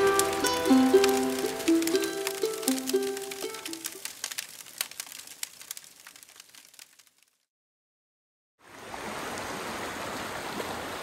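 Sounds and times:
river rushing: 0.0 - 4.1
campfire crackling and popping: 0.0 - 7.5.

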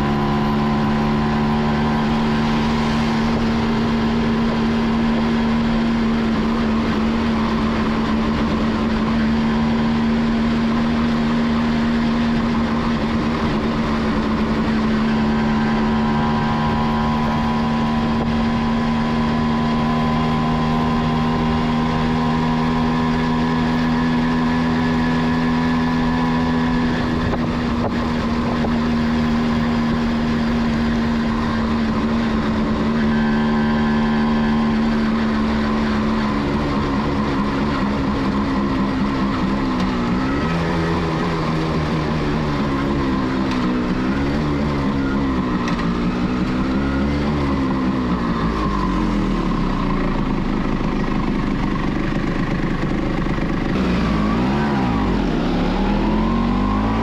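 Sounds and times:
two-stroke motorcycle engine: 0.0 - 57.0
wind and road noise: 0.0 - 57.0.

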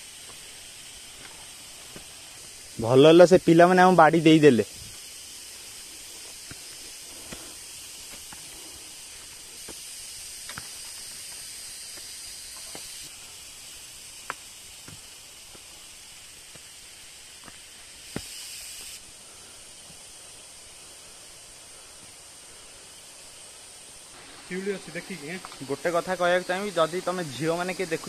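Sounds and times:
footsteps on leafy dirt trail: 0.0 - 2.8, 4.6 - 13.0, 14.4 - 19.1
high hiss of forest ambience: 0.0 - 28.0
walking stick and twig snaps: 9.6 - 13.0.

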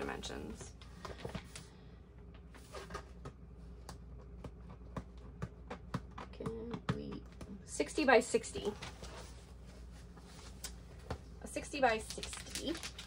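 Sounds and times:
plastic crinkling and rustling: 12.0 - 13.0.

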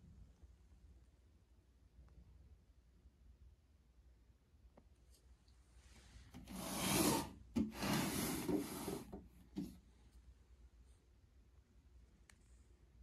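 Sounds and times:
rubbing scraping noise: 6.4 - 9.2.

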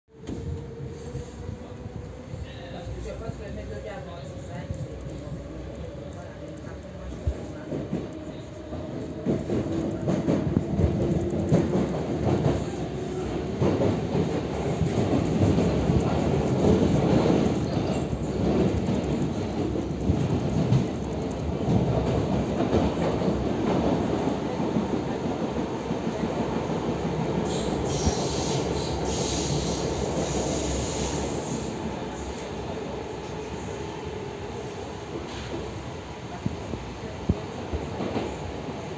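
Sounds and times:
train wheels rumbling and clattering: 0.1 - 38.9
wheels squealing on rails: 27.4 - 32.5.

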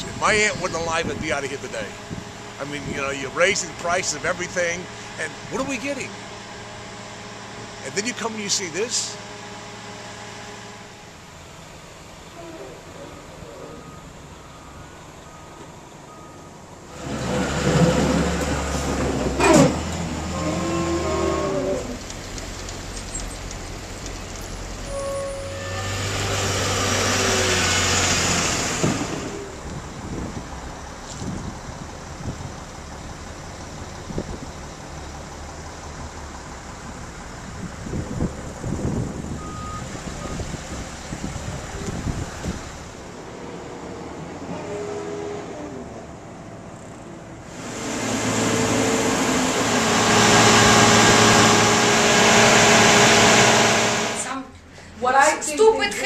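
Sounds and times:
heavy vehicle engine rumble: 0.0 - 55.8
faint street background: 0.0 - 56.0
traffic noise: 0.0 - 56.0
short high beep: 24.9 - 25.8
loud sound falling in pitch: 47.6 - 54.3.

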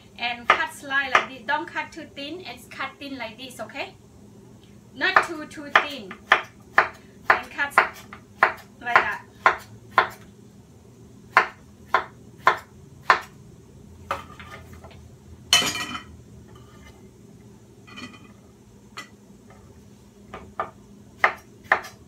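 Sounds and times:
dishware clattering: 15.5 - 16.1.

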